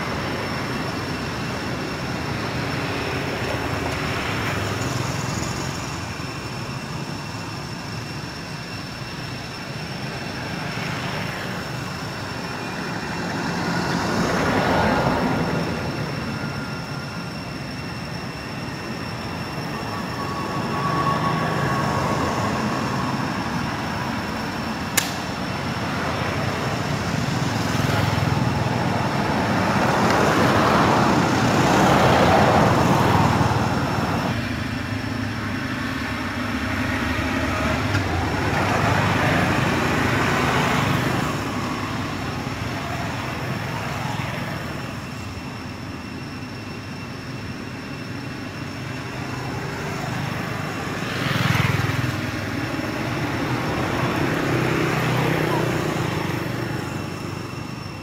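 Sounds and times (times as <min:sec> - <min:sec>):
steady traffic hum: 0:00.0 - 0:58.0
vehicles passing: 0:00.0 - 0:58.0
sharp click: 0:24.9 - 0:25.4.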